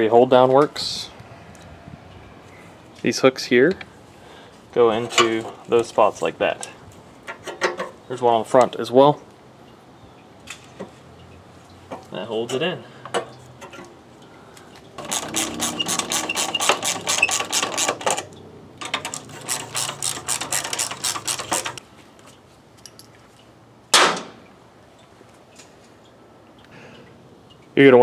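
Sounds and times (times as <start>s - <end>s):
socket ratchet clicking: 15.0s - 21.8s.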